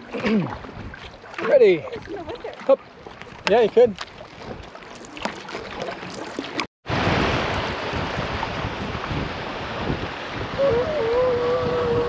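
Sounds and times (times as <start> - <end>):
canoe paddle strokes on water: 0.0 - 6.7.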